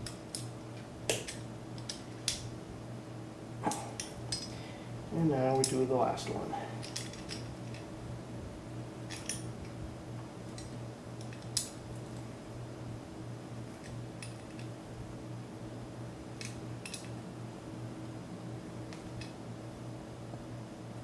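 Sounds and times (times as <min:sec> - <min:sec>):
pliers clicking on metal: 0:05.5 - 0:05.8, 0:16.4 - 0:17.1.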